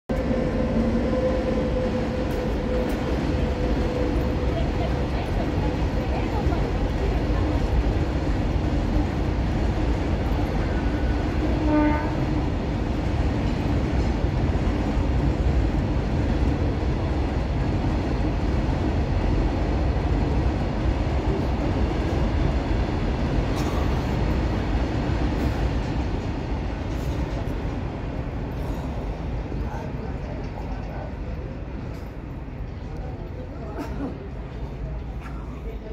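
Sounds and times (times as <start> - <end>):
train wheels on rail: 0.1 - 35.9
short horn-like tone: 11.5 - 12.3.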